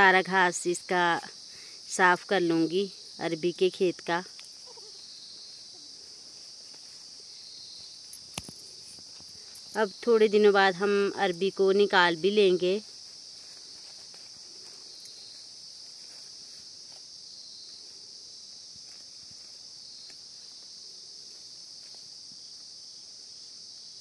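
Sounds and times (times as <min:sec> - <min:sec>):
insects chorus: 0:00.0 - 0:24.0
weeds rustling and snapping: 0:08.2 - 0:09.3.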